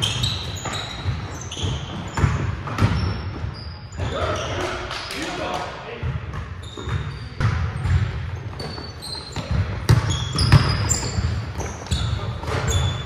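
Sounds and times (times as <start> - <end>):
sneakers squeaking on hardwood floor: 0.0 - 5.4, 6.0 - 13.0
basketball thumping on court: 9.4 - 11.7.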